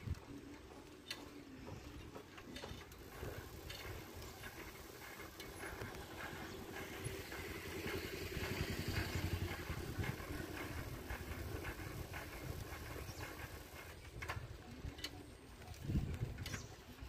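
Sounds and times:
road rumble: 0:00.0 - 0:17.0
wind: 0:00.0 - 0:17.0.

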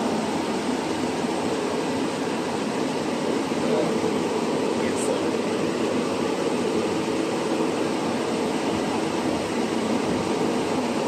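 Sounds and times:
workshop machinery running: 0:00.0 - 0:11.0.

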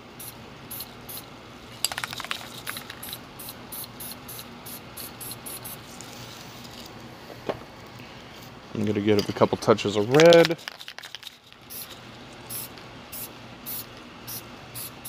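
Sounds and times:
spray paint puffs hissing: 0:00.2 - 0:06.3, 0:10.4 - 0:15.0.

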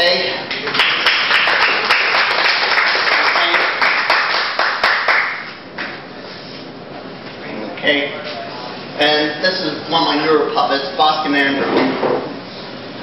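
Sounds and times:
audience applauding: 0:00.6 - 0:05.5.

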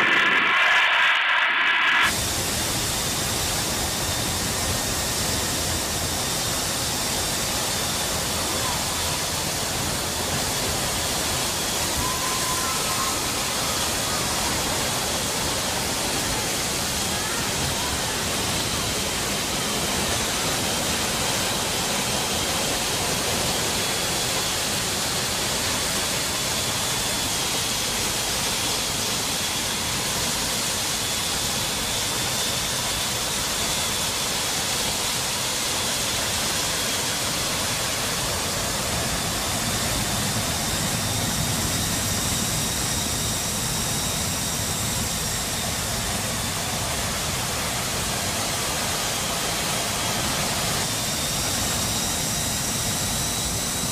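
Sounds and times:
wind rushing: 0:00.0 - 0:03.1
high whine: 0:00.0 - 0:53.9
jet engine noise: 0:00.0 - 0:53.9.

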